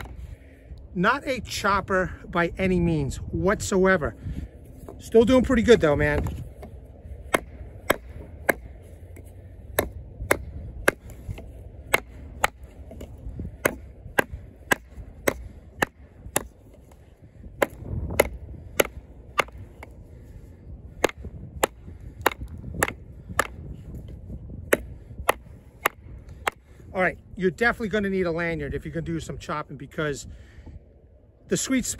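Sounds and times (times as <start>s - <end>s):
knife chopping hard wood: 6.2s - 8.7s, 9.7s - 19.9s, 20.9s - 23.7s, 24.6s - 26.7s.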